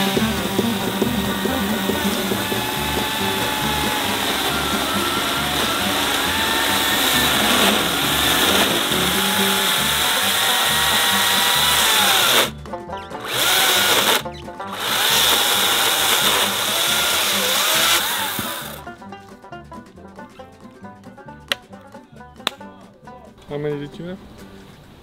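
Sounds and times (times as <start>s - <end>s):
chainsaw cutting a log: 0.0s - 12.6s, 13.2s - 18.8s
quiet music: 0.0s - 25.0s.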